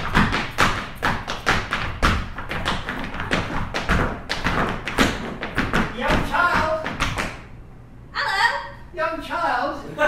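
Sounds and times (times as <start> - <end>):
feet stamping on stage floor: 0.0 - 7.4.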